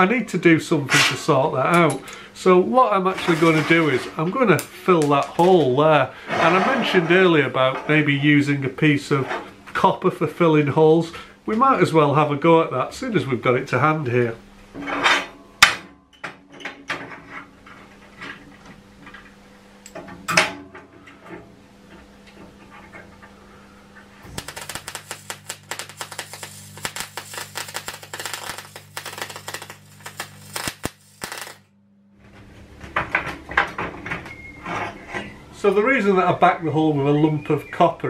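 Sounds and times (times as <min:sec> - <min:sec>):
steady hum: 0:21.0 - 0:33.9
welder arc crackling: 0:24.2 - 0:31.8.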